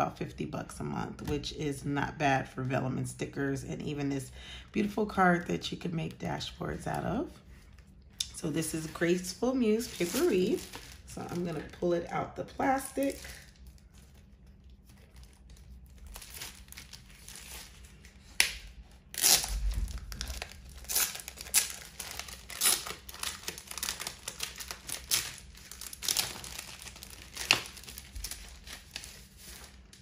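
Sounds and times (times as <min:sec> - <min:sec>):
plastic packaging crinkling: 0:07.6 - 0:30.0.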